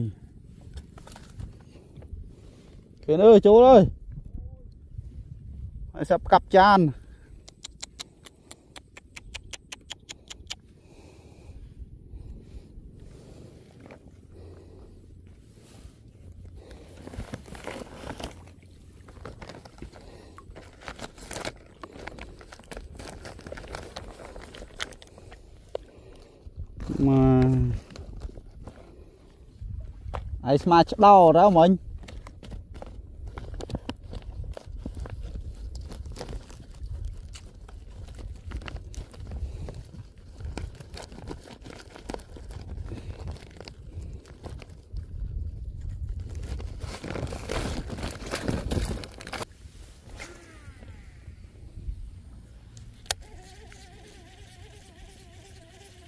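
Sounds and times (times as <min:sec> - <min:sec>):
plastic bag crinkling: 0:16.7 - 0:25.4, 0:33.4 - 0:44.8, 0:46.1 - 0:49.5.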